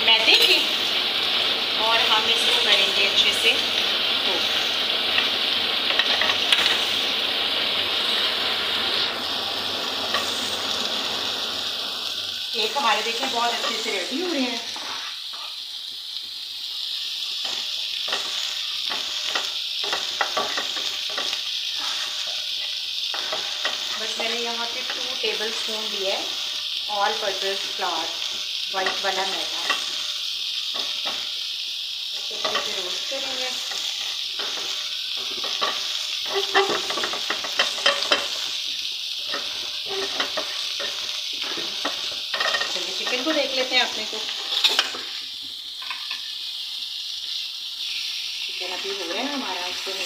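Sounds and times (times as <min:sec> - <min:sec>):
flour sizzling in oil: 0:00.0 - 0:50.0
spatula scraping frying pan: 0:04.3 - 0:07.1, 0:17.4 - 0:25.6, 0:32.3 - 0:38.5, 0:39.2 - 0:45.2.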